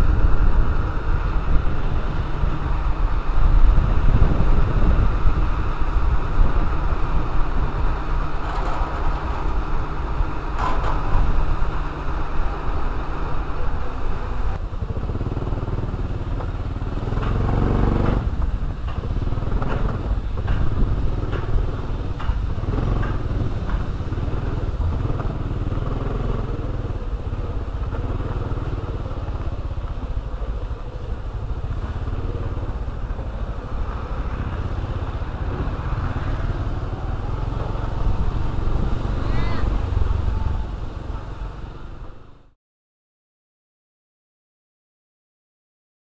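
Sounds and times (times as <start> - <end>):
scooter engine running: 0.0 - 42.5
knocks and rattles: 10.6 - 11.3, 18.8 - 25.4.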